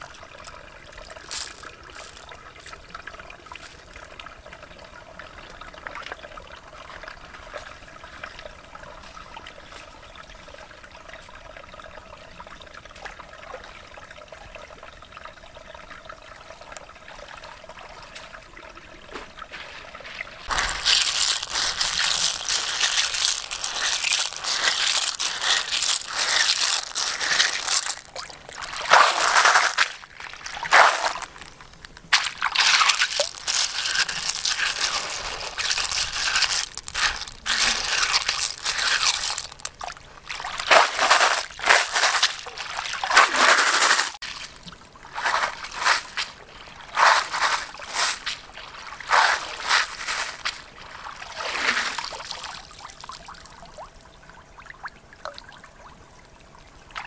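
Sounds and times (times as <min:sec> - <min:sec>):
water sloshing and trickling: 0:00.0 - 0:57.0
shells rattling: 0:01.2 - 0:02.2, 0:20.5 - 0:44.2.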